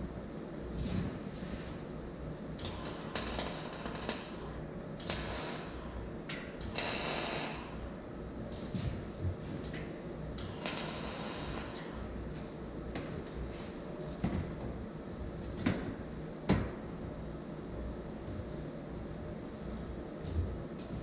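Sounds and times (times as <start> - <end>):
crackling welding arc: 2.6 - 8.0, 10.4 - 12.1.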